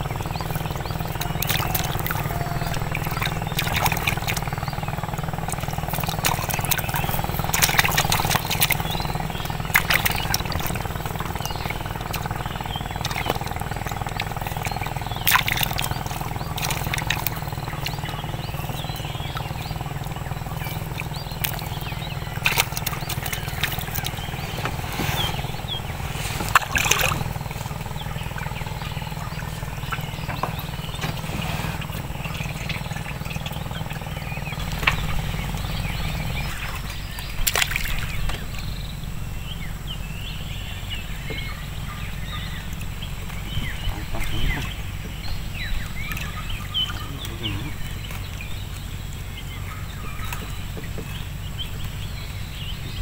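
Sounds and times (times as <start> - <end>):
low steady rumble: 0.0 - 53.0
faint high chirps: 0.1 - 39.0.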